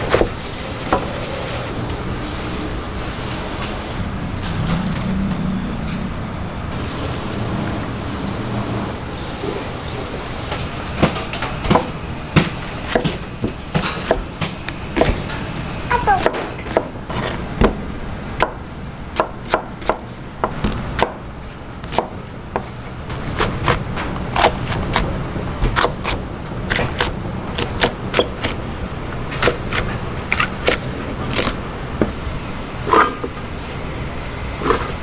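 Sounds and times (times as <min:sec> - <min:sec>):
knife chopping on wooden board: 0:11.0 - 0:15.2, 0:19.2 - 0:21.2.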